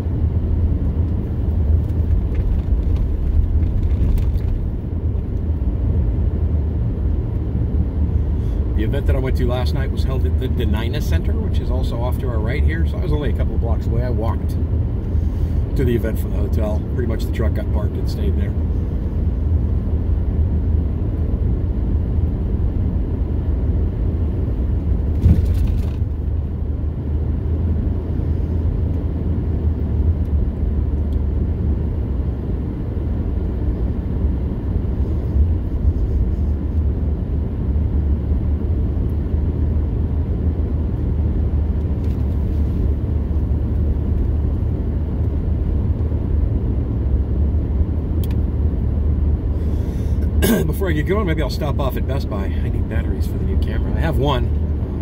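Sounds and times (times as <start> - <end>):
truck engine and road rumble: 0.0 - 55.0
brief thump: 25.1 - 25.9.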